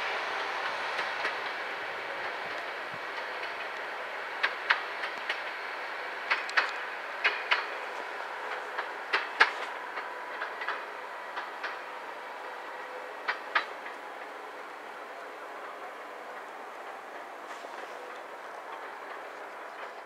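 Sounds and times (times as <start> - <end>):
steady hiss: 0.0 - 20.0
train wheels clicking over rail joints: 0.0 - 20.0.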